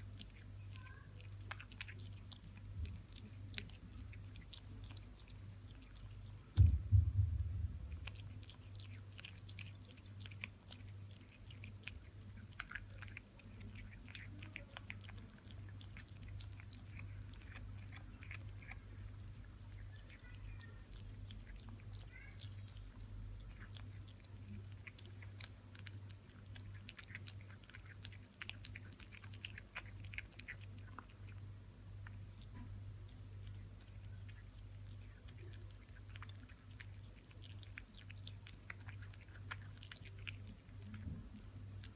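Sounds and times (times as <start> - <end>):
kitten chewing: 0.0 - 41.9
steady low hum: 0.0 - 41.9
loud low thump: 6.6 - 8.0.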